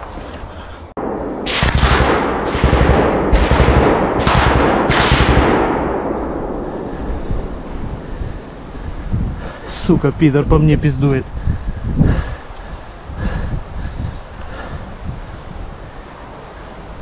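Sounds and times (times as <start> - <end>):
gunshot echo: 1.0 - 8.2
automatic gunfire bursts: 1.5 - 5.8.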